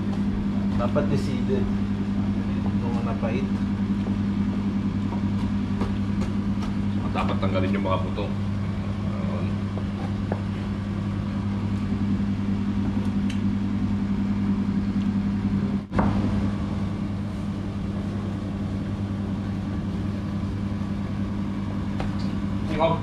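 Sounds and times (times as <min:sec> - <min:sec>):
low machine hum: 0:00.0 - 0:23.0.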